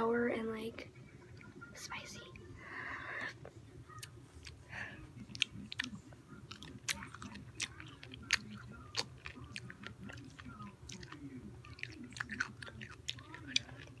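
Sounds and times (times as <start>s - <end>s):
crunchy chewing: 3.4s - 14.0s.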